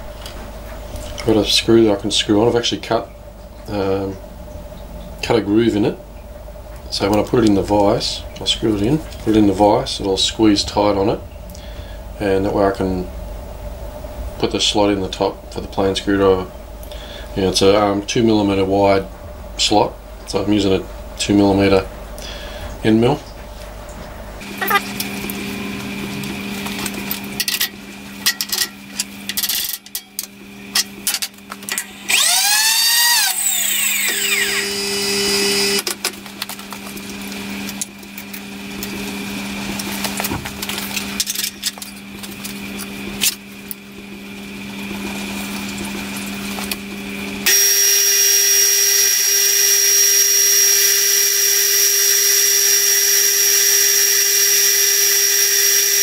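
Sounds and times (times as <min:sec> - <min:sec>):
milling machine spindle whine: 0:24.4 - 0:56.0.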